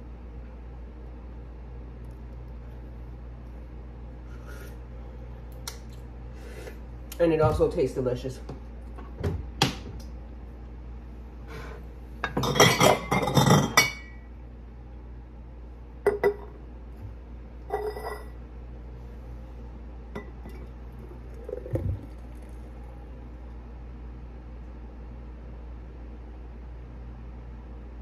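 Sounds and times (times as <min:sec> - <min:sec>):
glass jar clinking on stone: 0:17.7 - 0:18.3.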